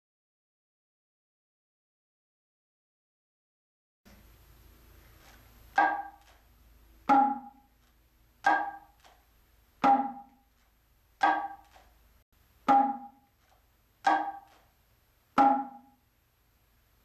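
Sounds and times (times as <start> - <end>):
hand drum strokes ringing: 5.8 - 6.3, 7.1 - 7.7, 8.4 - 9.0, 9.8 - 10.4, 11.2 - 11.7, 12.7 - 13.2, 14.1 - 14.5, 15.4 - 16.0.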